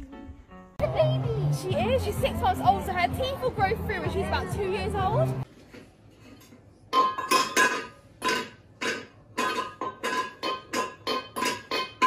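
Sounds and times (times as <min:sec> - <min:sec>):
metal bowl clanking on floor: 0:06.2 - 0:12.0.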